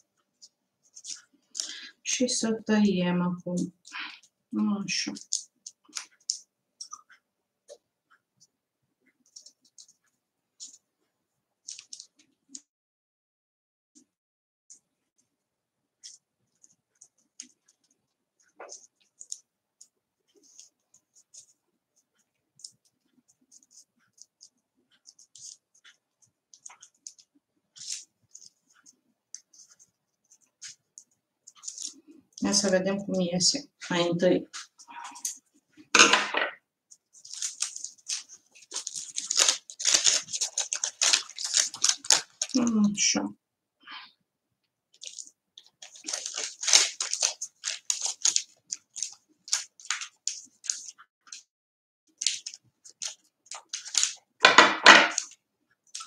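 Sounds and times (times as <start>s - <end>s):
scissors snipping paper: 5.0s - 7.0s, 22.6s - 32.7s, 37.1s - 42.8s, 45.0s - 51.4s, 52.2s - 54.2s, 55.1s - 56.0s.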